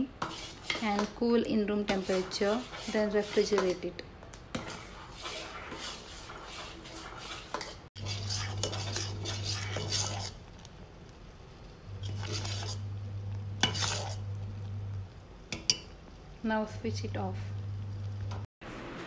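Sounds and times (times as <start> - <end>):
spoon scraping a steel pot: 0.0 - 3.9, 4.5 - 10.6, 12.0 - 13.0, 13.6 - 14.3.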